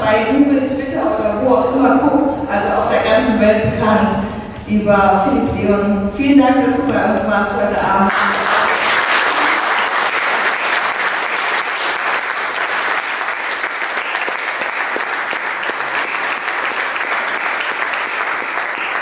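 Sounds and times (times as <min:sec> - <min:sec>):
audience applauding: 0:08.1 - 0:19.0.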